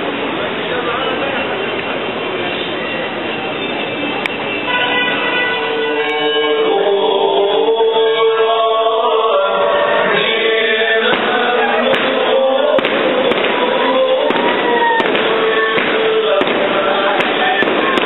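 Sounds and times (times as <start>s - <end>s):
loud noise: 0.0s - 18.0s
music with long held notes: 5.6s - 18.0s
sharp bangs: 11.0s - 18.0s.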